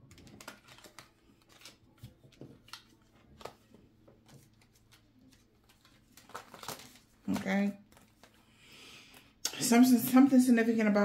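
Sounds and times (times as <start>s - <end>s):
cards being shuffled: 0.1s - 8.4s.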